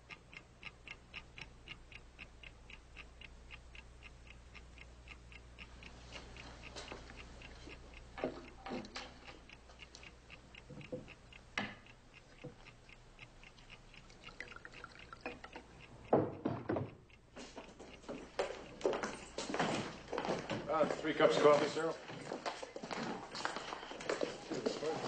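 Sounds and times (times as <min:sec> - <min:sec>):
clock ticking: 0:00.0 - 0:22.0
knocks and rustles: 0:16.1 - 0:17.0.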